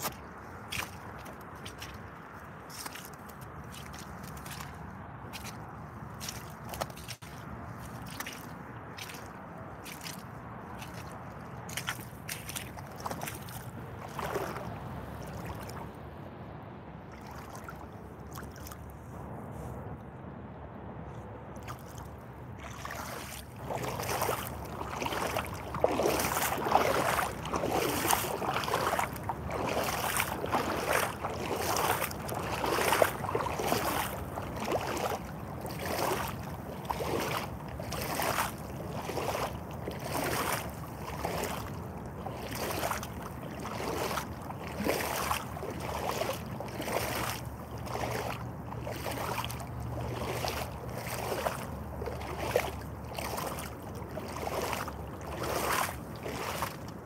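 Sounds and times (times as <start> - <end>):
boots splashing through muddy water: 0.0 - 16.2, 17.0 - 19.7, 21.5 - 57.0.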